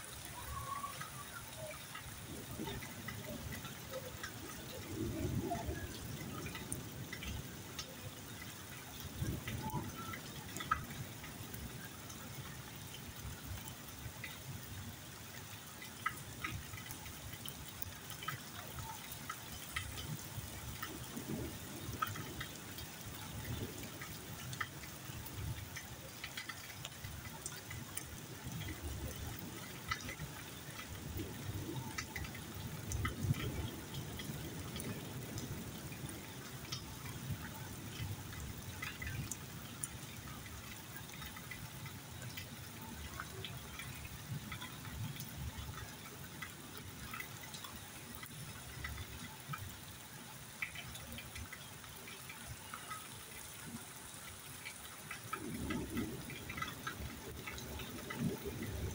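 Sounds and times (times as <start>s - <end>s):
drips and small splashes: 0.0s - 58.9s
rain falling: 0.0s - 58.9s.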